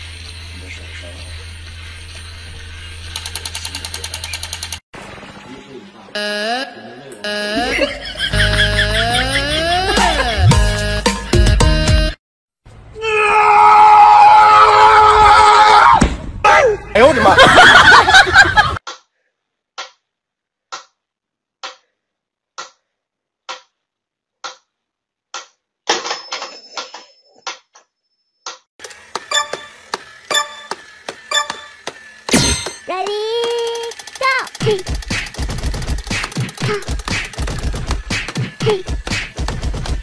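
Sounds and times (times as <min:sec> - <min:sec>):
toy soldier clicking rapidly: 0:03.1 - 0:04.8, 0:33.0 - 0:38.4
loud long held cry: 0:13.0 - 0:16.8
metronome ticking: 0:29.3 - 0:31.8.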